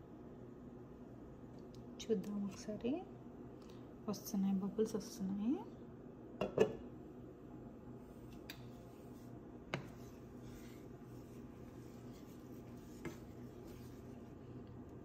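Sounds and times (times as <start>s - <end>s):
low steady hum: 0.0s - 15.0s
wooden spatula scraping pan: 9.1s - 14.4s.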